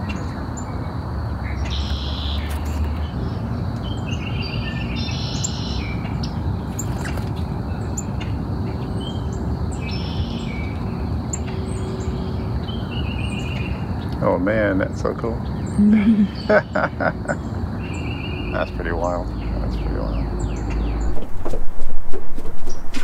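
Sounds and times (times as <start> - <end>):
songbirds calling: 0.0 - 21.6
high bird chirps: 1.5 - 3.3, 3.9 - 7.1, 9.0 - 14.1.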